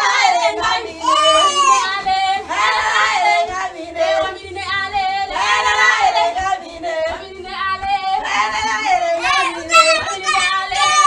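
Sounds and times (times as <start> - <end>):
women singing: 0.0 - 11.0.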